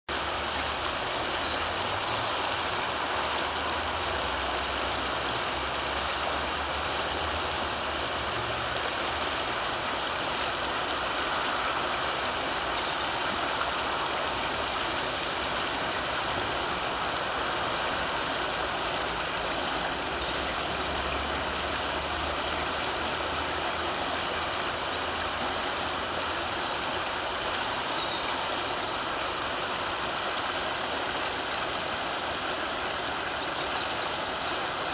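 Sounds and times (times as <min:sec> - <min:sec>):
river water flowing: 0:00.1 - 0:34.9
small birds chirping: 0:16.0 - 0:21.1, 0:22.8 - 0:29.3.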